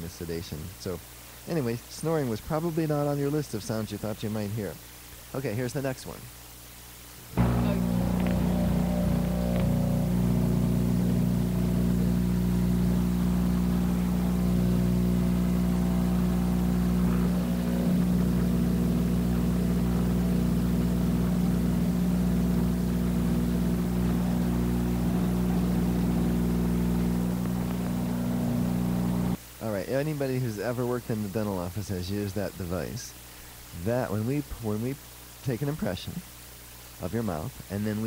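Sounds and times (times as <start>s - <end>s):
electric vibrator humming: 7.3s - 29.4s.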